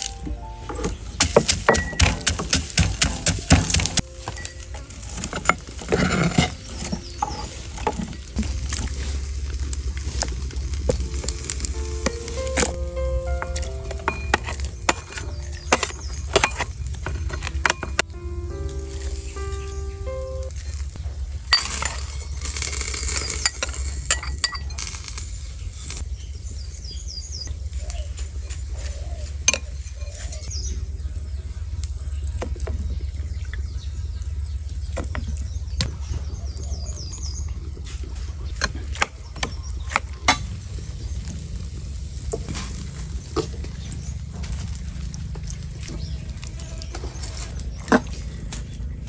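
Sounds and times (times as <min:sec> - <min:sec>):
utensils clinking against dishes: 0:00.0 - 0:08.2, 0:21.5 - 0:25.3, 0:28.3 - 0:30.5
steady low hum: 0:00.0 - 0:49.0.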